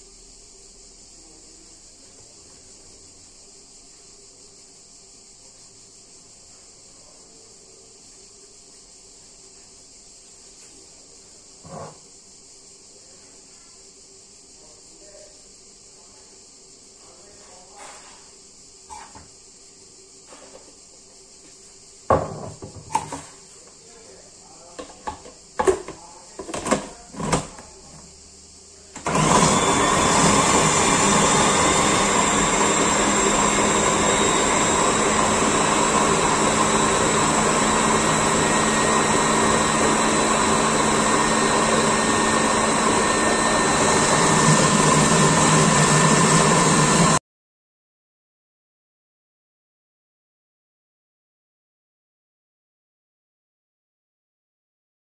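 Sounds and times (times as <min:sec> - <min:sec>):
food processor motor running: 0:29.0 - 0:47.2.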